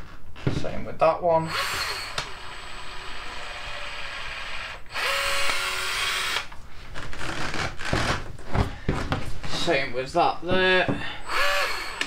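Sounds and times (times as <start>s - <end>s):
caulking gun motor whirring: 1.5s - 6.5s, 11.3s - 12.0s.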